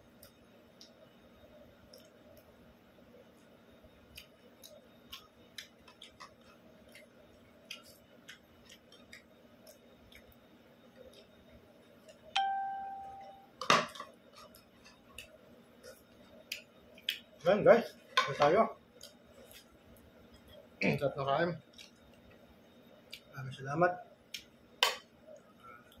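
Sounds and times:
clear ringing tone: 12.4s - 13.6s.

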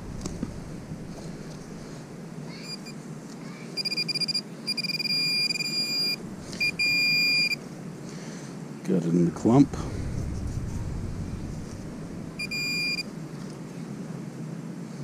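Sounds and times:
high electronic beep: 3.8s - 7.6s, 12.4s - 13.0s.

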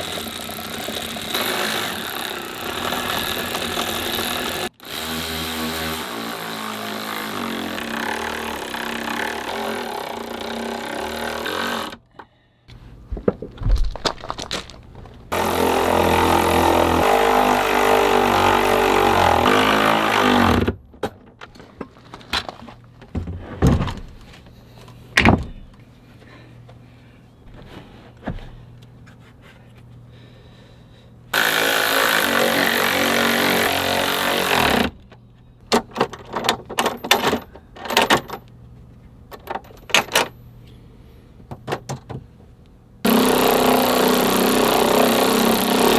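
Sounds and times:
metal hardware clicking and knocking: 35.0s - 38.6s, 39.3s - 40.4s, 41.5s - 42.2s.

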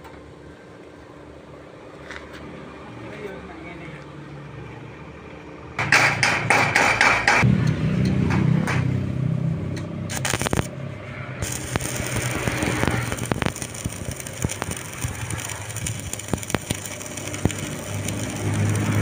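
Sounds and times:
sharp clicks: 9.8s - 10.7s, 11.4s - 19.0s
welding arc crackling: 10.1s - 10.7s, 11.3s - 19.0s.

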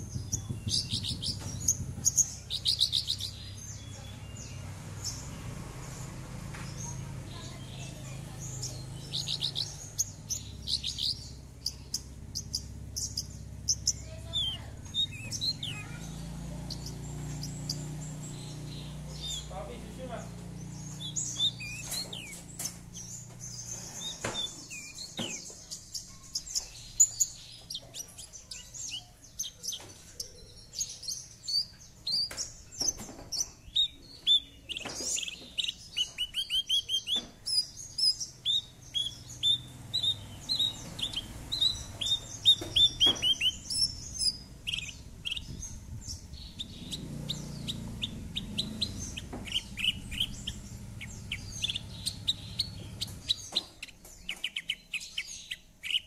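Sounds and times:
bird singing high chirps: 0.0s - 56.0s.

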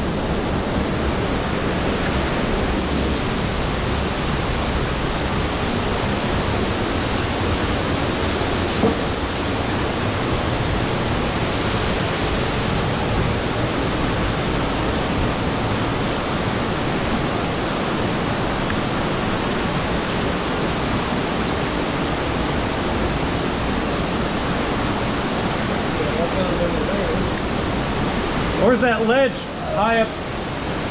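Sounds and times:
water rushing through cave: 0.0s - 30.9s
brief knock: 8.8s - 9.0s.

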